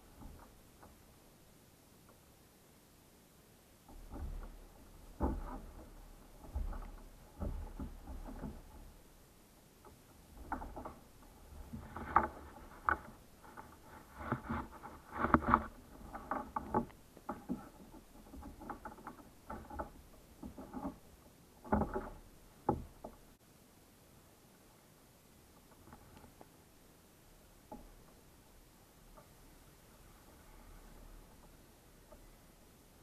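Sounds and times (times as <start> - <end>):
gear knocking and clattering: 3.9 - 9.2.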